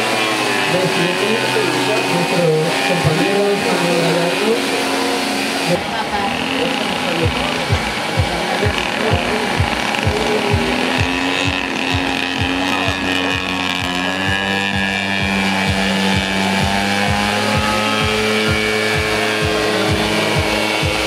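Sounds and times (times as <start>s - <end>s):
model plane engine drone: 0.0s - 21.0s
background music with thumping beat: 7.2s - 21.0s.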